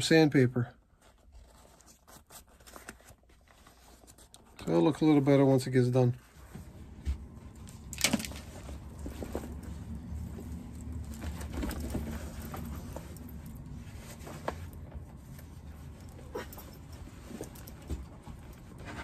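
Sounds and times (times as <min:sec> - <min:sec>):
low steady hum: 0:00.0 - 0:19.0
leather jacket rustling: 0:06.2 - 0:19.0.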